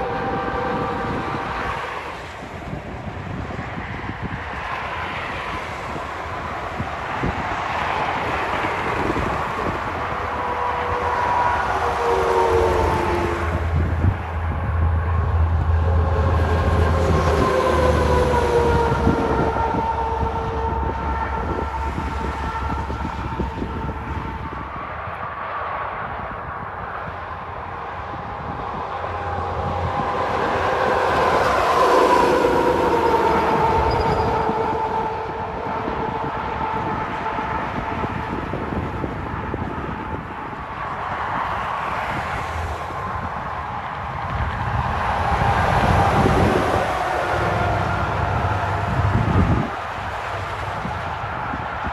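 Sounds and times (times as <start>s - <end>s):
highway traffic: 0.0s - 51.9s
truck and cars approaching: 0.0s - 51.9s
truck engine passing: 8.0s - 24.6s, 42.4s - 51.3s.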